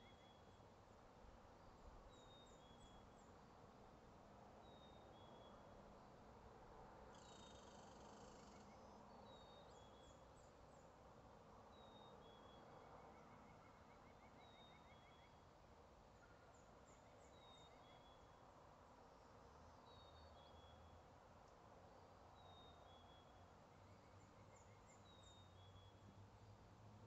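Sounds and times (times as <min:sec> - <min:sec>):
steady low hiss: 0:00.0 - 0:27.0
distant birdsong: 0:07.1 - 0:21.1, 0:21.9 - 0:26.7.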